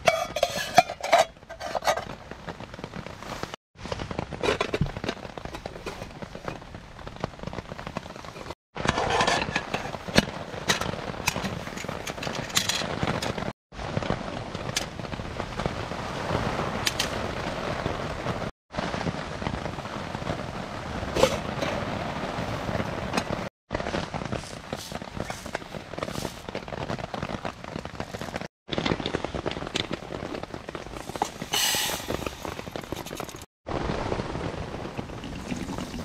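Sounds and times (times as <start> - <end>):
metal cook pots clinking: 0.0 - 2.0
rain pattering on a tarp: 2.1 - 8.9, 9.5 - 36.0.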